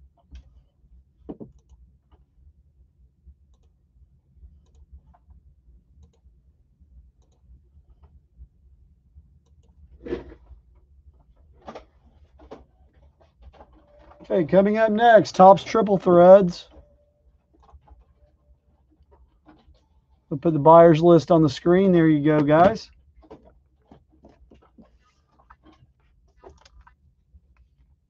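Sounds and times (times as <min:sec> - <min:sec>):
handling noises on a tabletop: 0:10.0 - 0:10.5.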